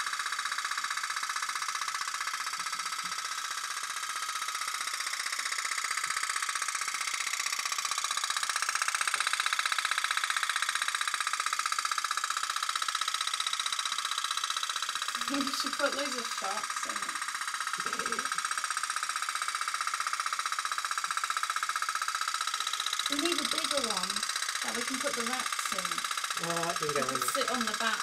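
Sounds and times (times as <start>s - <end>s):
toy steam boat engine buzzing: 0.0s - 28.0s.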